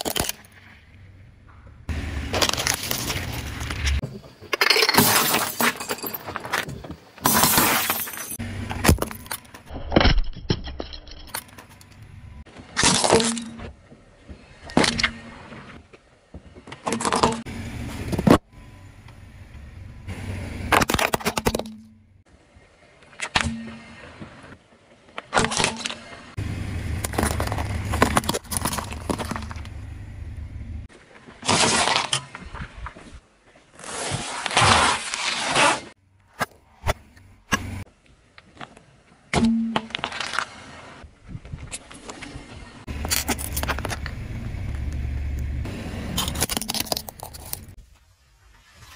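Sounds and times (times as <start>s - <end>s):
low tyre rumble: 0.5s - 4.4s, 17.4s - 23.0s, 26.1s - 31.0s, 40.6s - 48.0s
tyre crushing objects: 26.9s - 29.8s.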